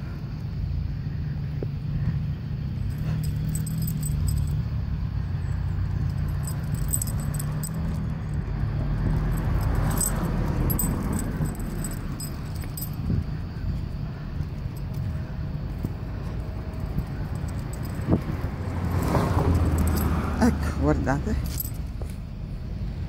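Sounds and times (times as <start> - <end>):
low rumble of street noise: 0.0 - 23.0
light clinking: 2.7 - 20.3, 21.4 - 22.3.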